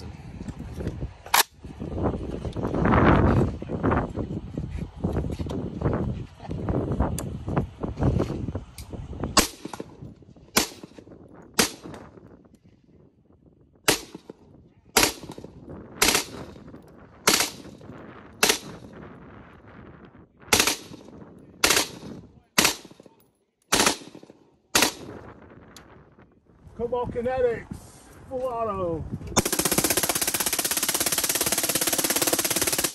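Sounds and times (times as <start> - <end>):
rifle shots with echo: 9.4 - 10.0, 10.6 - 11.0, 11.6 - 12.0, 13.9 - 14.4, 15.0 - 16.6, 17.2 - 17.8, 18.4 - 18.8, 20.5 - 25.2.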